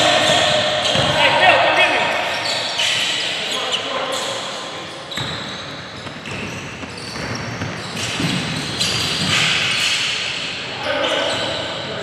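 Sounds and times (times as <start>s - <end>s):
basketball bouncing: 0.3s - 1.2s, 6.0s - 9.6s.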